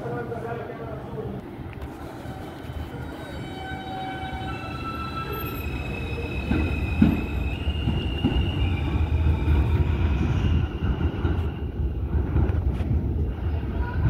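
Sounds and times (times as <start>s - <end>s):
train wheels rumbling on rails: 1.5s - 14.0s
clunks over track joints: 6.4s - 8.6s.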